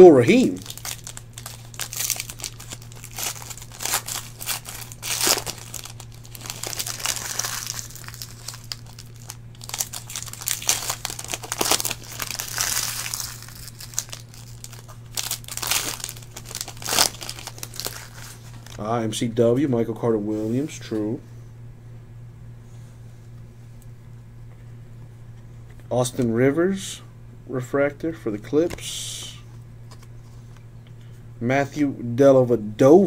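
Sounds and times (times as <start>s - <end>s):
steady low hum: 0.0s - 33.0s
wrapper crinkling: 0.2s - 18.8s.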